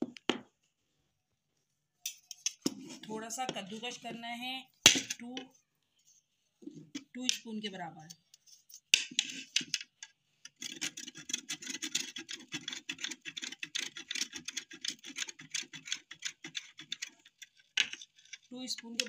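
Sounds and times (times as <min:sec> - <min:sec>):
soap rasping on metal grater: 0:10.6 - 0:18.4.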